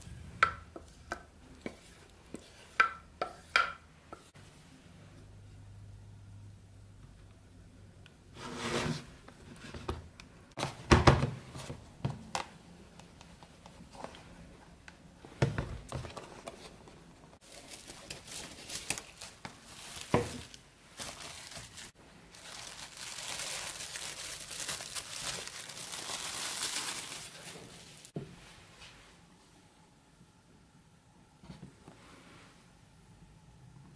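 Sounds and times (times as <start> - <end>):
plastic crinkling: 17.4 - 28.1.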